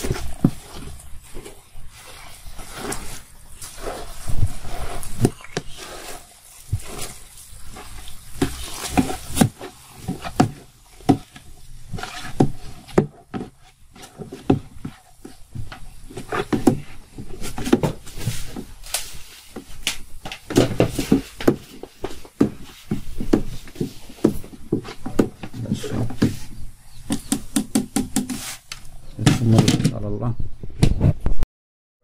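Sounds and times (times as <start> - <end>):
wet squelching of grapes: 0.0 - 27.6.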